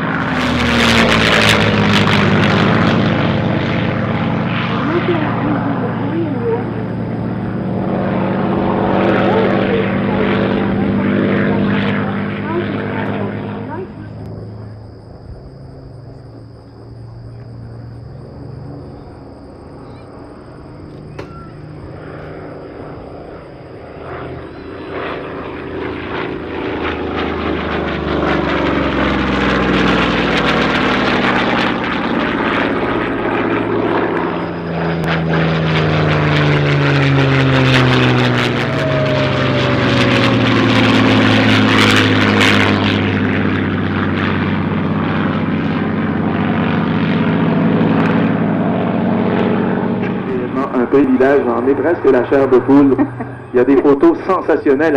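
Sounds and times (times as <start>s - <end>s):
propeller plane engines passing: 0.0s - 54.9s.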